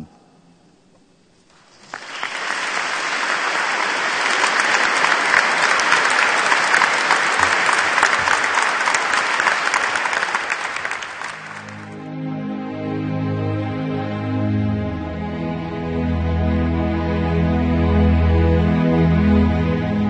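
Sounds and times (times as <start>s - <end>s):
audience applauding: 1.5s - 12.0s
soft instrumental music: 11.4s - 20.0s.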